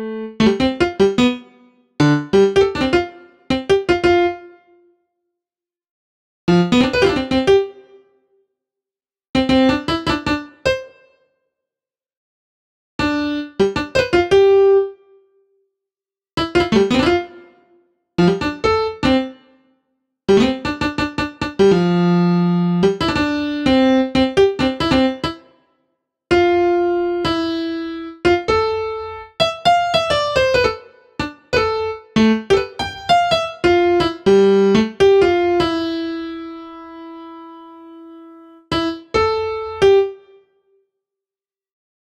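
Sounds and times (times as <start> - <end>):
piano-like keyboard music: 0.0 - 4.7, 6.5 - 7.9, 9.4 - 11.0, 13.0 - 15.1, 16.4 - 17.6, 18.2 - 19.5, 20.3 - 25.5, 26.3 - 40.4.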